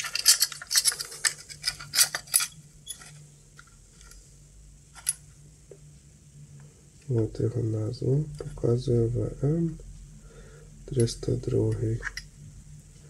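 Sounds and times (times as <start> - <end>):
small metallic clinks and clicks: 0.0 - 3.2.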